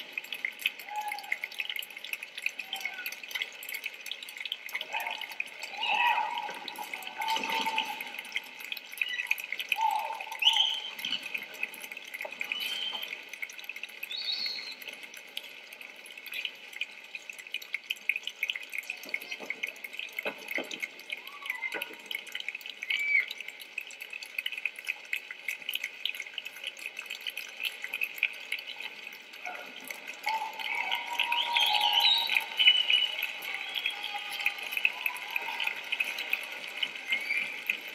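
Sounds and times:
people cheering: 0:00.8 - 0:01.6, 0:02.5 - 0:03.4, 0:04.8 - 0:11.0, 0:21.1 - 0:22.1, 0:29.4 - 0:37.9
audience applauding: 0:30.5 - 0:37.9.

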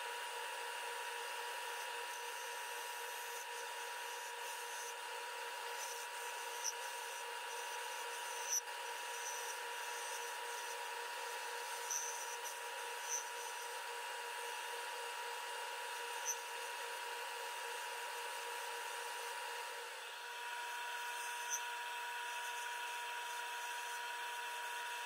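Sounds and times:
turning tool cutting wood: 0:01.2 - 0:19.8, 0:20.6 - 0:24.0
wood lathe running: 0:01.4 - 0:17.0.

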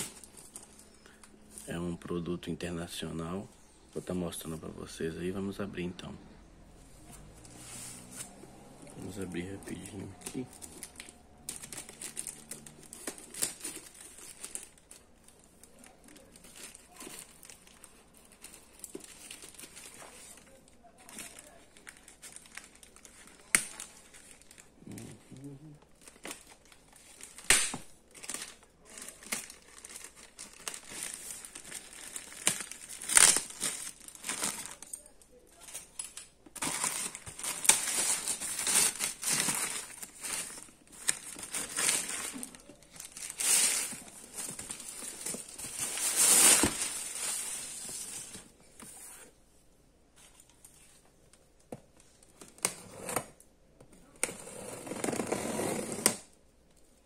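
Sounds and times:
plastic bag crinkling and tearing: 0:08.7 - 0:48.5.

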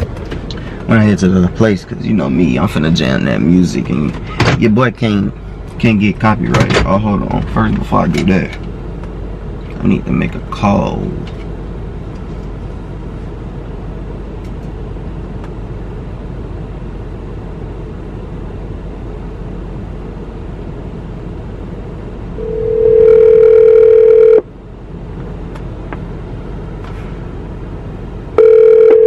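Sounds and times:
low steady hum: 0:00.0 - 0:29.0
phone ringback tone: 0:22.4 - 0:24.4, 0:28.4 - 0:29.0.

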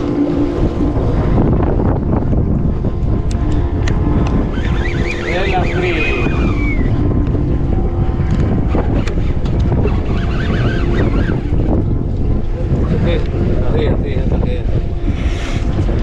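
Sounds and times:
steady hum: 0:00.0 - 0:16.0
wind buffeting microphone: 0:00.0 - 0:16.0.

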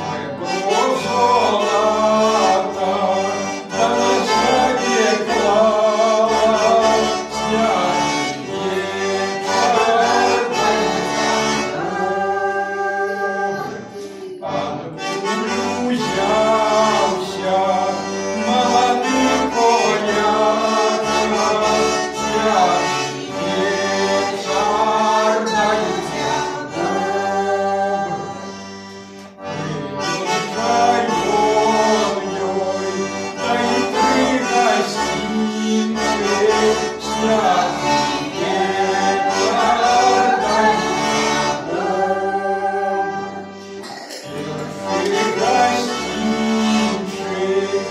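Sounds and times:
button accordion playing: 0:00.0 - 0:47.9
man singing: 0:00.5 - 0:11.2, 0:14.4 - 0:28.2.

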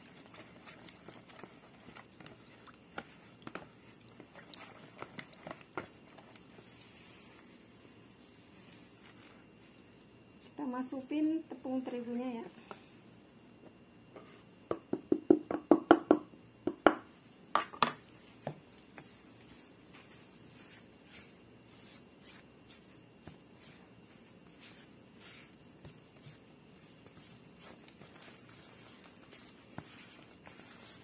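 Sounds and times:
plastic tapping on mixing bowl: 0:14.7 - 0:17.0.

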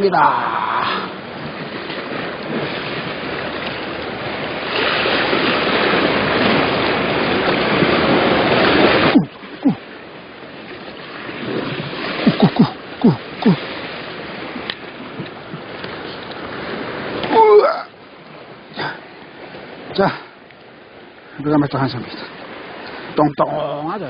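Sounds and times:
wind buffeting microphone: 0:00.0 - 0:18.8
sea surf on rocks: 0:00.0 - 0:24.0.

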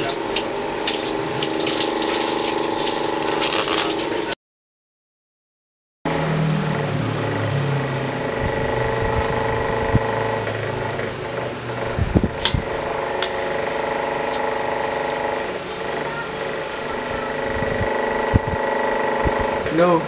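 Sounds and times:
steady mechanical hum: 0:00.0 - 0:04.4, 0:06.1 - 0:20.0
deeper hum: 0:06.1 - 0:19.8.

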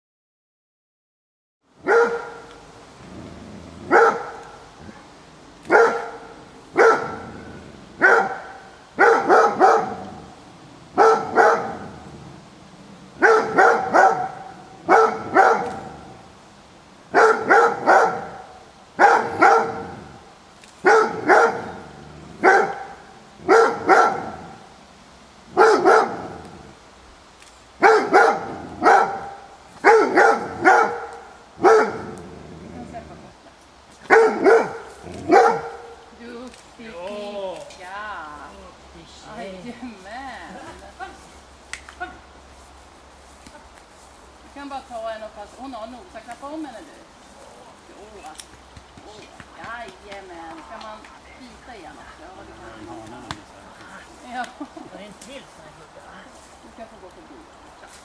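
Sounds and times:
dog barking: 0:01.8 - 0:02.5, 0:03.9 - 0:04.6, 0:05.7 - 0:07.4, 0:08.0 - 0:10.2, 0:11.0 - 0:12.0, 0:13.2 - 0:16.0, 0:17.1 - 0:20.0, 0:20.8 - 0:24.6, 0:25.5 - 0:26.4, 0:27.8 - 0:32.2, 0:34.1 - 0:36.0.

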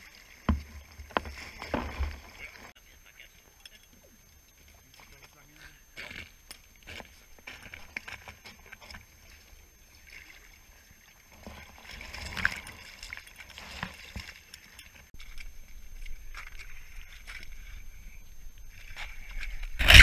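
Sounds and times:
water sloshing and splashing: 0:00.0 - 0:02.8, 0:06.6 - 0:20.0
knocks and scrapes: 0:00.4 - 0:02.7, 0:18.8 - 0:20.0.

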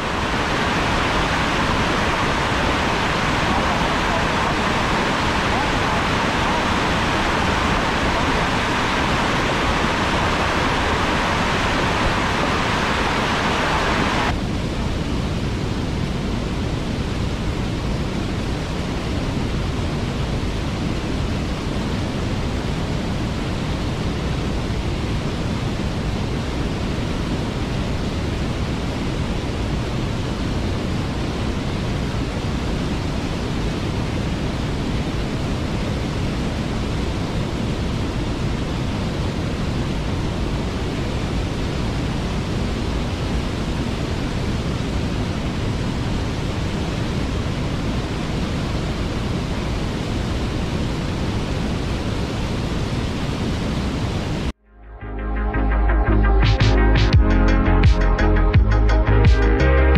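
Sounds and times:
waterfall rushing: 0:00.0 - 0:14.5.

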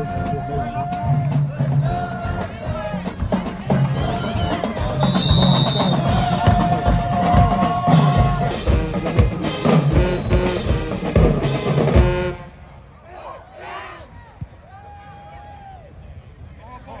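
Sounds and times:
music with heavy drum beat: 0:00.0 - 0:12.4.

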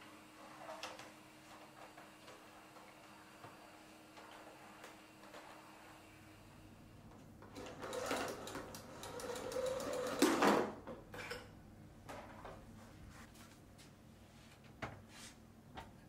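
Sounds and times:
vacuum cleaner whirring and rattling: 0:00.0 - 0:06.6, 0:07.4 - 0:10.7.

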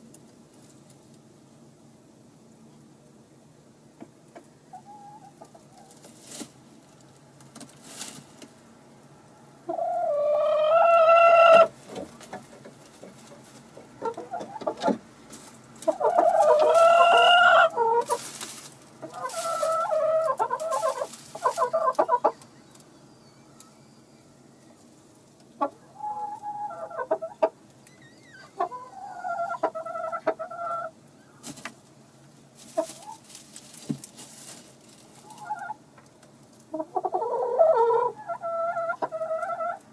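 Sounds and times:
chicken clucking: 0:04.0 - 0:06.1, 0:09.6 - 0:23.0, 0:23.6 - 0:27.7, 0:28.4 - 0:31.7, 0:32.6 - 0:35.8, 0:36.6 - 0:39.9
chicken calling: 0:09.7 - 0:11.8, 0:15.8 - 0:18.4, 0:19.0 - 0:24.9, 0:25.6 - 0:31.4, 0:36.7 - 0:39.9.

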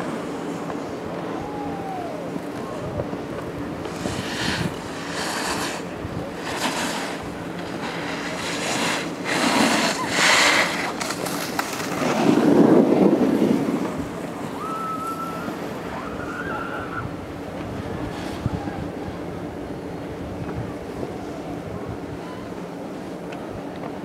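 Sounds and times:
wind buffeting microphone: 0:01.0 - 0:05.2, 0:11.2 - 0:22.2.

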